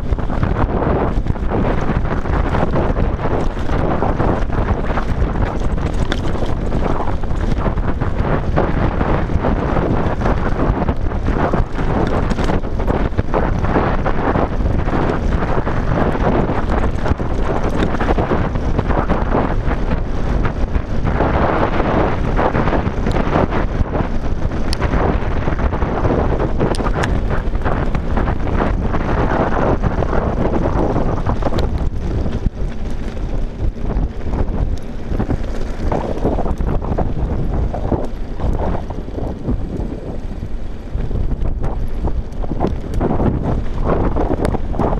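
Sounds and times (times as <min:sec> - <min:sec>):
bike rattling clicks and knocks: 0:00.0 - 0:44.9
bike tyres crunching over gravel: 0:00.0 - 0:44.9
wind buffeting microphone: 0:00.0 - 0:44.9.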